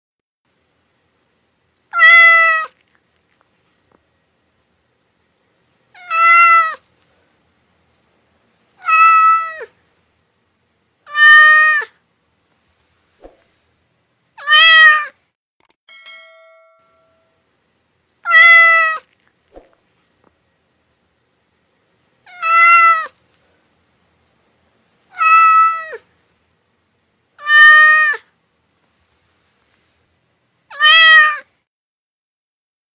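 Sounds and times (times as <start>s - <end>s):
cat meowing: 1.9s - 2.8s, 6.0s - 6.9s, 8.8s - 9.7s, 11.1s - 11.9s, 14.4s - 15.2s, 18.2s - 19.1s, 22.3s - 23.2s, 25.1s - 26.0s, 27.4s - 28.3s, 30.7s - 31.5s.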